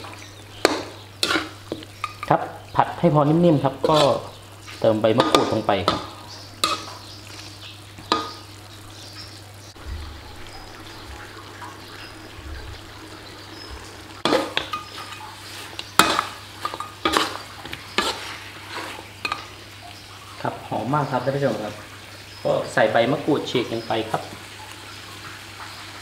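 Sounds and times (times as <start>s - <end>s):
spatula scraping and knocking pan: 0.0s - 2.3s, 3.8s - 7.1s, 14.2s - 19.6s
meat sizzling in a pan: 0.0s - 26.0s.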